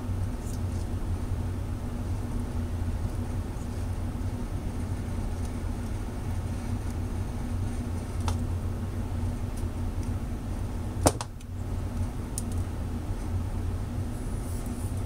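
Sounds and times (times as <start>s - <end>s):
low workshop hum: 0.0s - 15.0s
wires and parts clicking: 2.2s - 8.5s, 9.2s - 10.2s, 11.0s - 13.3s.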